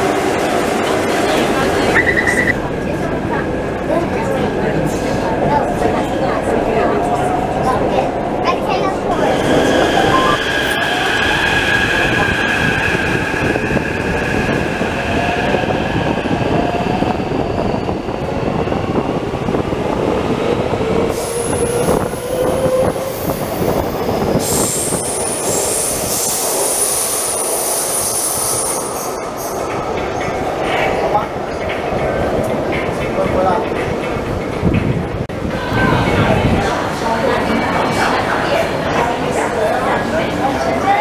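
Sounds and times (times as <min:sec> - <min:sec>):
wheels rumbling on rail: 0:00.0 - 0:41.0
high wheel squeal: 0:09.2 - 0:15.6.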